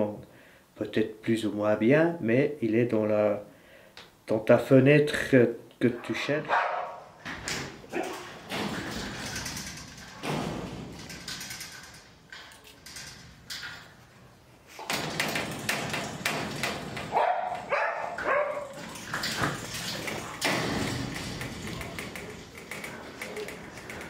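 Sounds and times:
dogs barking and whining: 6.5s - 7.1s, 7.9s - 8.3s, 17.1s - 19.0s
dogs jumping against wire mesh: 7.2s - 14.1s, 14.7s - 24.0s.

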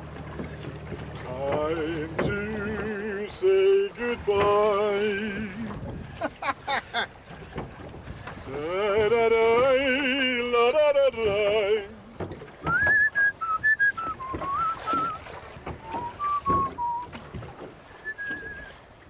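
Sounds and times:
man singing with vibrato: 1.2s - 5.8s, 8.5s - 12.1s
man whistling a tune: 12.7s - 17.1s, 18.0s - 18.8s.

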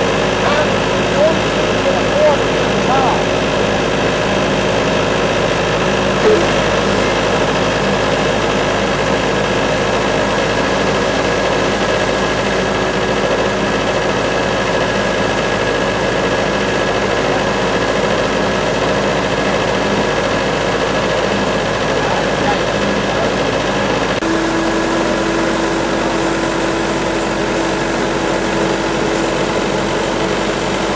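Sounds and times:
sawmill engine drone: 0.0s - 30.9s.

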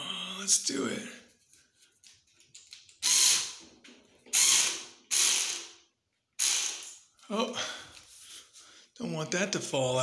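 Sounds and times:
cordless screwdriver driving screw: 4.3s - 5.7s.

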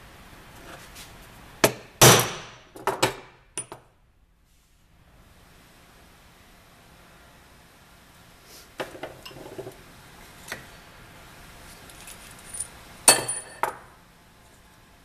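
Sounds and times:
metallic clatter with ring: 11.7s - 13.8s
metal tools clinking and knocking: 11.8s - 13.8s.

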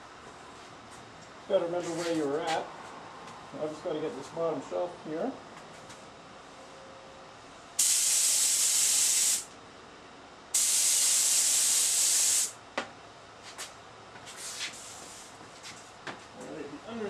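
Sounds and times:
spray gun hissing: 7.8s - 9.5s, 10.6s - 12.6s.

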